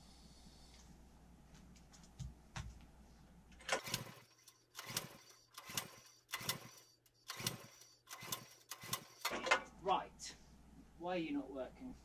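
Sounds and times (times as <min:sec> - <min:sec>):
recoil starter whirring rasp: 0:03.6 - 0:09.6.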